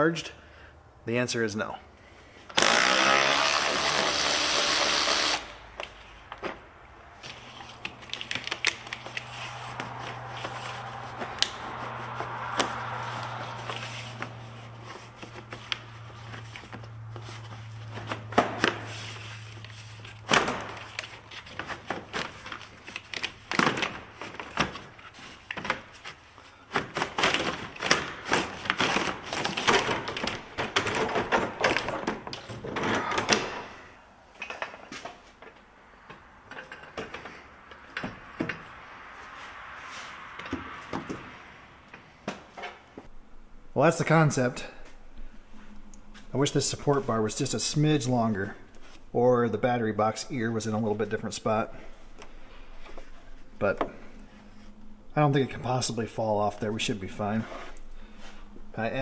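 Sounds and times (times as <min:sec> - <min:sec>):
plastic parts knocking and rattling: 0:26.7 - 0:33.7
low steady hum: 0:43.0 - 0:59.0.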